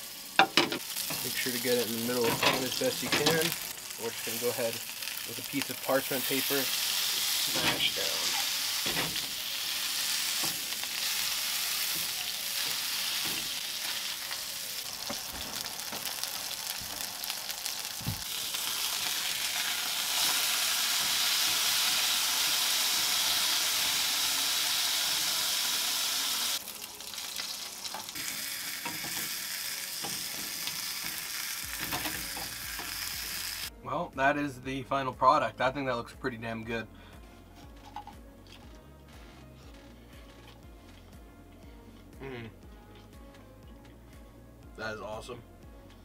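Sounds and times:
burger sizzling in a frying pan: 0.0 - 33.7.

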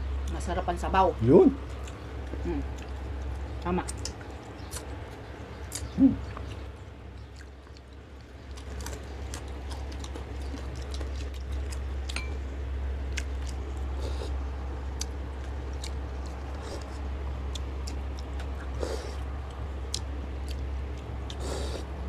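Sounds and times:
steady low hum: 0.0 - 22.0
wet chewing and lip clicks: 1.6 - 12.3, 13.0 - 21.9
person humming: 6.0 - 6.2.

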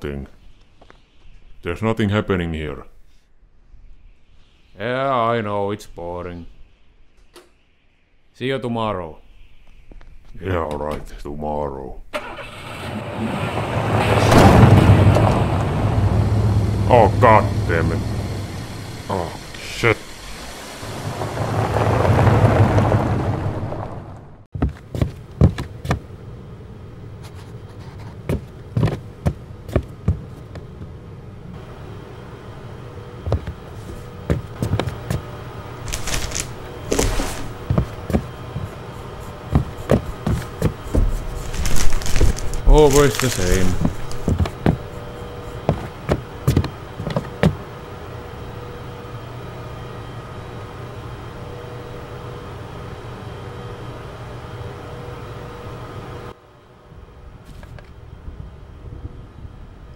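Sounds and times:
steady low hum: 13.6 - 59.9
heavy footsteps: 24.6 - 26.1, 27.3 - 31.0, 33.2 - 47.7.

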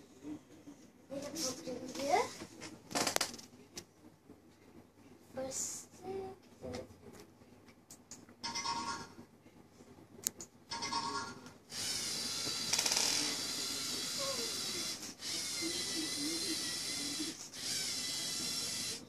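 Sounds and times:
toy motors whining: 11.7 - 19.0.

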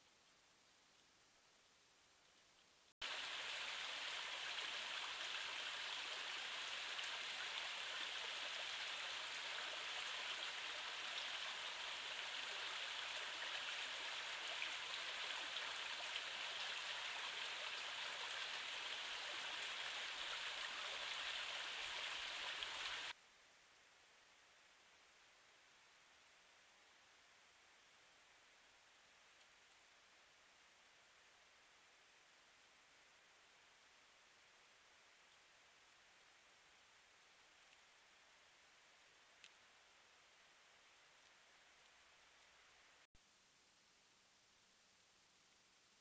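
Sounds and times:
stream water over stones: 3.0 - 23.2.

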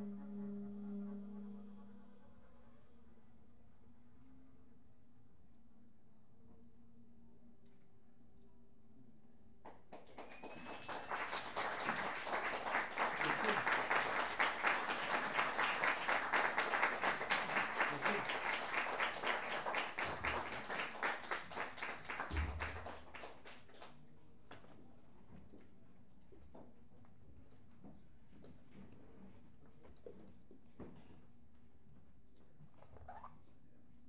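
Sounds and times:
audience applauding: 9.7 - 23.9.

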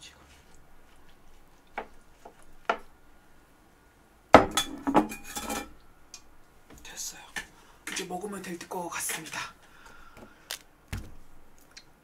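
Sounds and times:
dishes and cutlery clinking: 4.4 - 5.8.

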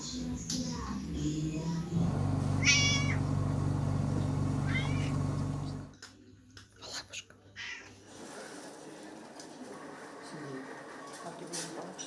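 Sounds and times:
steady low hum: 1.8 - 5.9
cat meowing: 2.6 - 3.2, 4.6 - 5.2, 7.6 - 7.9.

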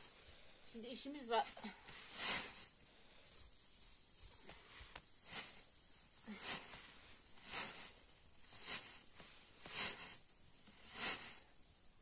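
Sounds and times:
dry straw rustling in a sack: 0.0 - 12.0.

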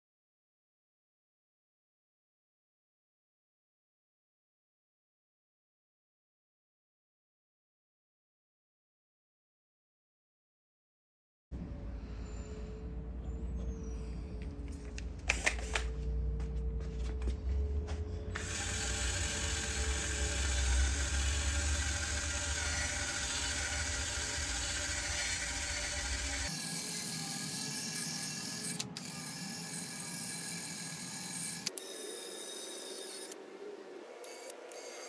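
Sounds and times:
clicks and handling noise: 14.4 - 18.5
angle grinder wire wheel whining: 18.3 - 33.4
wire wheel brushing metal: 18.3 - 33.4.

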